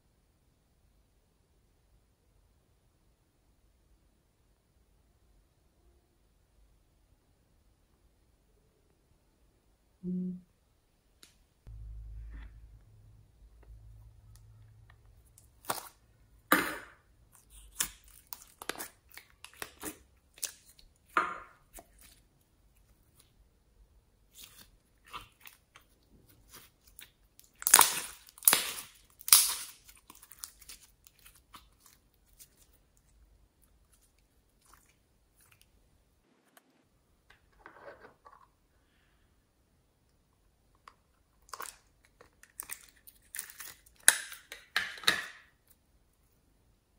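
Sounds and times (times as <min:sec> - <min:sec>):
slime crackling and popping: 0:15.3 - 0:16.0, 0:17.3 - 0:22.2, 0:24.3 - 0:32.8.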